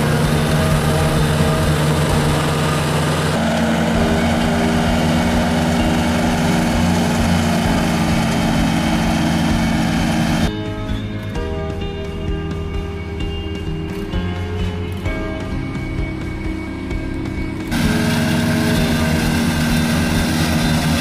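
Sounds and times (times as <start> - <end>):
ride-on mower engine running: 0.0 - 21.0.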